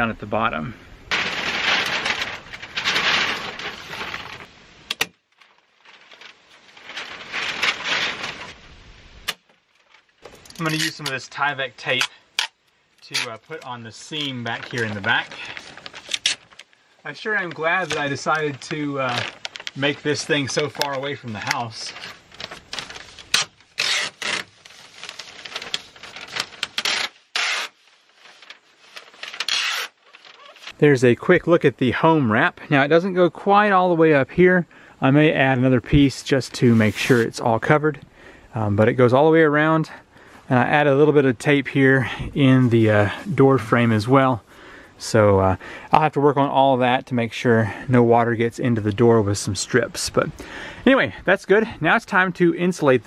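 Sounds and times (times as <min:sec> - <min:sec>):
tape ripping off roll: 0:01.1 - 0:08.6, 0:14.5 - 0:16.7, 0:17.8 - 0:30.7
house wrap rustling and crinkling: 0:01.1 - 0:30.9, 0:35.9 - 0:37.8, 0:40.5 - 0:44.2.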